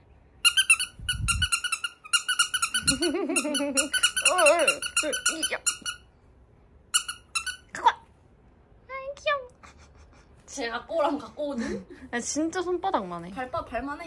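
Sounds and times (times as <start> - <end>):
squeaky dog toy squeaking: 0.4 - 6.1, 6.9 - 8.0.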